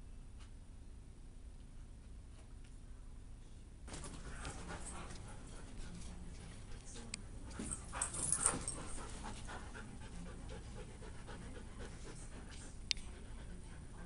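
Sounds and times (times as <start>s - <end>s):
dogs panting: 3.9s - 14.0s.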